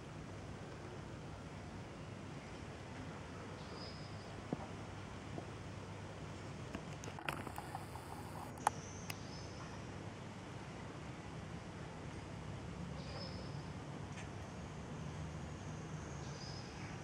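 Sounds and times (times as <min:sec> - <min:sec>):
low steady rumble and hiss: 0:00.0 - 0:17.0
camera clicks and handling noise: 0:06.7 - 0:08.8.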